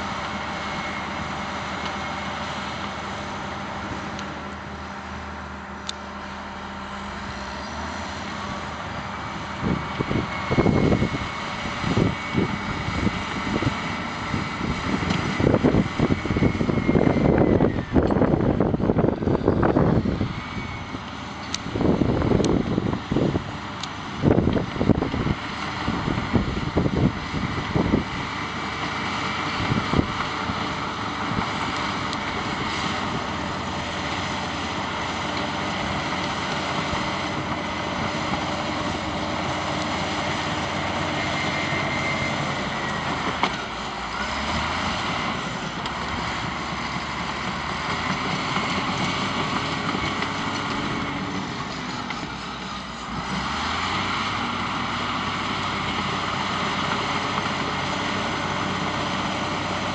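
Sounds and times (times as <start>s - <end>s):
diesel engine running: 0.0s - 59.9s.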